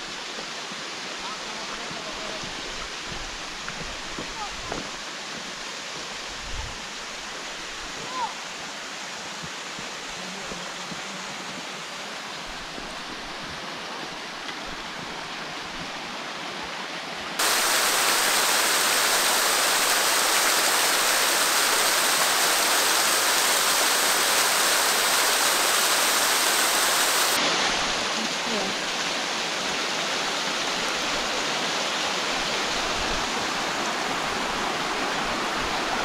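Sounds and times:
waterfall splashing on rocks: 0.1s - 6.4s, 17.4s - 36.0s.

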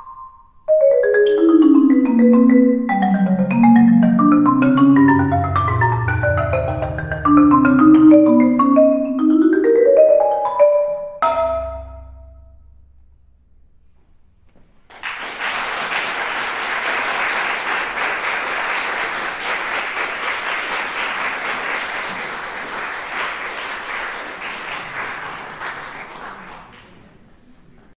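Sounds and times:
audience applauding: 14.9s - 28.0s.

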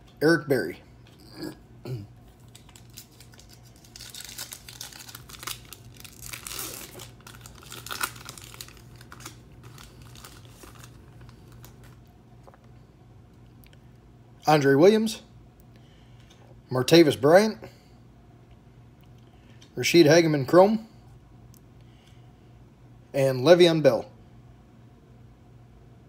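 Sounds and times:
foil wrapper tearing and crinkling: 2.3s - 12.0s.

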